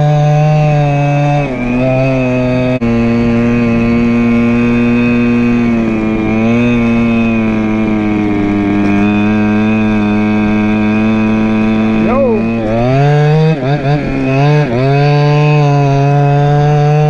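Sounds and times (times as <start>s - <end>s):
scooter two-stroke engine running: 0.0s - 17.0s.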